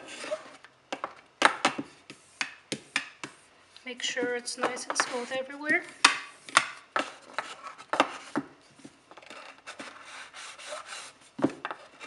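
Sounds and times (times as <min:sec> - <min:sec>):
soft rubbing strokes: 0:03.3 - 0:06.5, 0:07.2 - 0:12.0.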